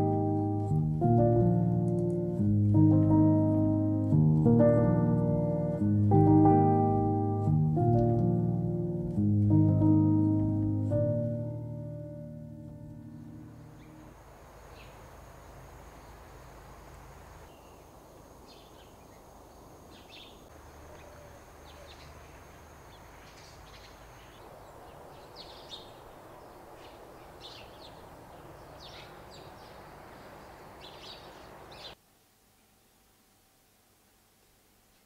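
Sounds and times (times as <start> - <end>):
steady low outdoor rush: 7.8 - 31.9
bird chirps: 13.0 - 14.1, 19.9 - 32.0.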